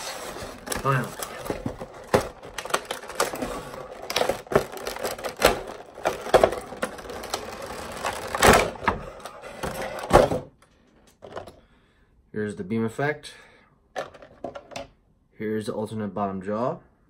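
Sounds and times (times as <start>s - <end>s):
plastic bag crinkling: 0.0s - 8.8s.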